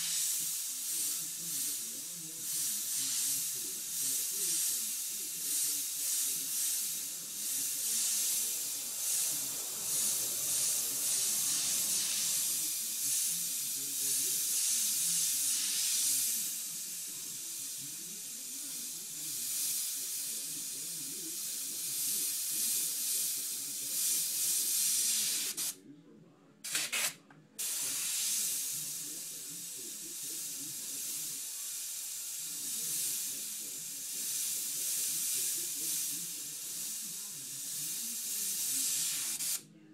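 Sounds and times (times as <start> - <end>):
short air puffs: 0.0 - 13.4
airbrush hissing: 0.0 - 25.8, 26.7 - 39.6.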